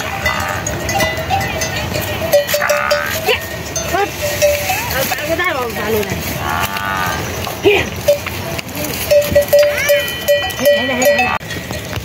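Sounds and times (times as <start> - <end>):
sheep bells clanking: 0.0 - 12.0
sheep bleating: 2.4 - 3.4, 6.4 - 7.3.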